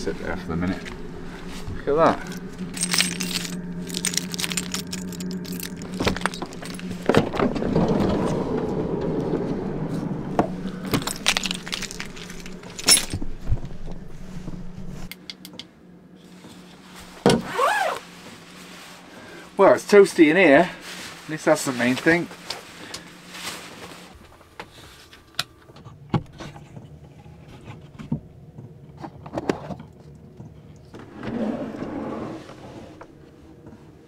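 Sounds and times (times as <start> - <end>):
steady low hum: 0.0 - 34.0
keys jangling: 2.2 - 7.2, 10.8 - 13.3.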